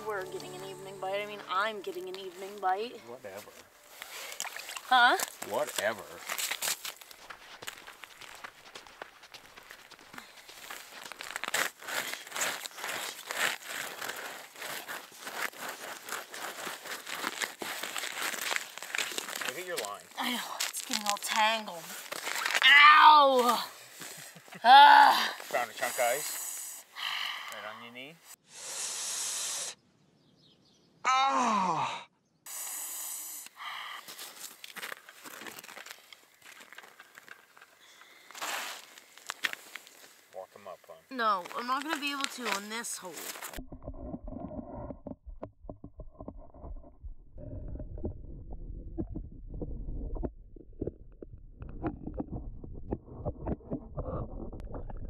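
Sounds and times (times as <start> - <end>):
rustling: 1.5 - 22.7, 34.0 - 40.4, 41.2 - 43.6
boots crunching on snow: 6.2 - 20.0, 20.6 - 22.6, 38.3 - 40.2
hiss of breath through teeth: 28.4 - 29.8, 32.5 - 34.2
cartoon man groaning in pain: 31.1 - 32.1.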